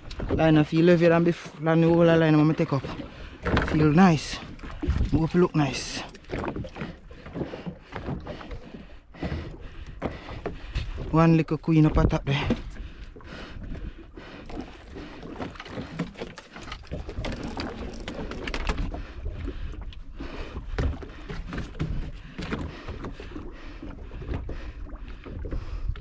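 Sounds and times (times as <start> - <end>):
water slapping against boat hull: 0.0 - 26.0
wind rumbling on microphone: 1.9 - 8.3
knocks and splashes of fishing line: 2.6 - 5.3.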